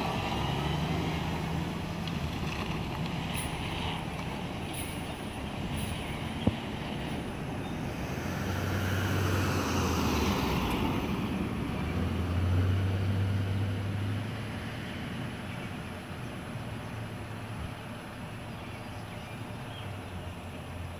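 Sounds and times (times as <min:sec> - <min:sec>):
fire engine engine rumble: 0:00.0 - 0:09.7.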